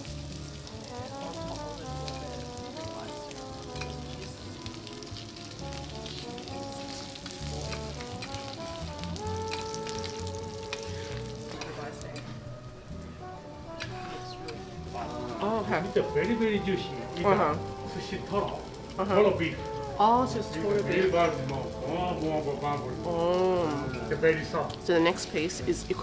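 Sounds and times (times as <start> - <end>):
background music with bass line: 0.0 - 26.0
beef fat sizzling on a griddle: 0.0 - 26.0
knife and spatula striking hot plate: 3.8 - 4.0.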